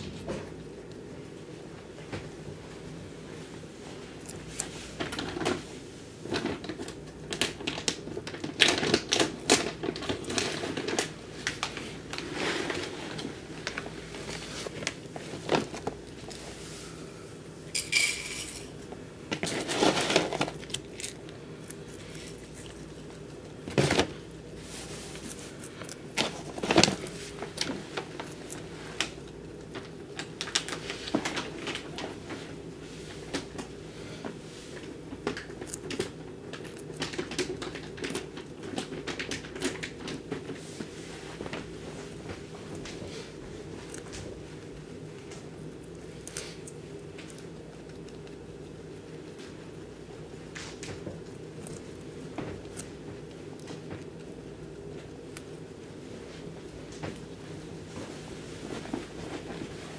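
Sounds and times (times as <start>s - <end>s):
guinea pig chewing carrot: 19.3s - 32.0s, 34.7s - 58.2s.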